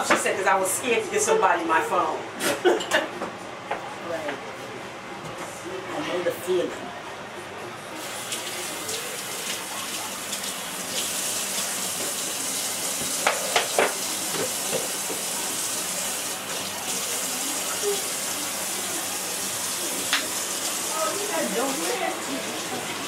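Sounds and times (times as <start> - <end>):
faucet running into sink: 8.0 - 23.0.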